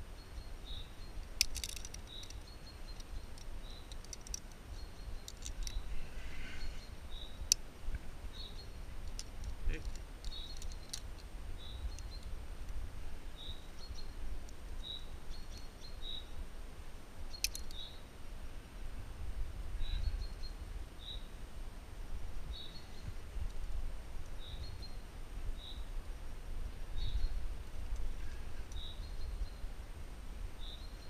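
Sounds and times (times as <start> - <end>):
bird chirping: 0.0 - 7.6, 8.3 - 11.0, 11.6 - 12.3, 13.3 - 14.2, 14.8 - 16.4, 17.3 - 18.1, 19.8 - 21.4, 22.5 - 23.2, 24.3 - 25.9, 26.9 - 27.4, 28.2 - 29.7, 30.6 - 31.0.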